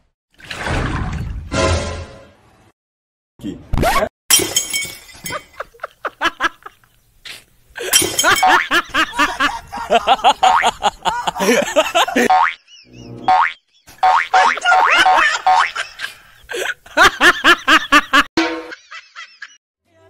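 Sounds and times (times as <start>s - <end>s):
glass shattering: 4.3s - 5.8s, 7.8s - 8.7s.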